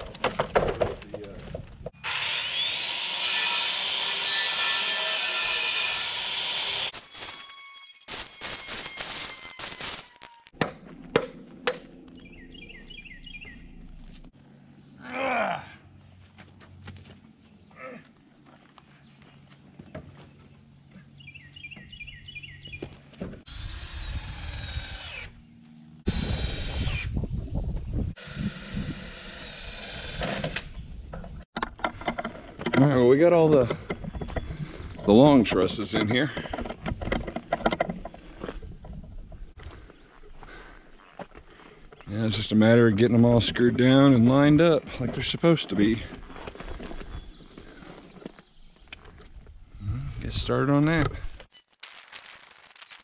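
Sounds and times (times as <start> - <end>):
power tool motor whining: 5.6 - 10.5, 23.5 - 27.2, 28.2 - 30.8
footsteps: 16.1 - 21.1.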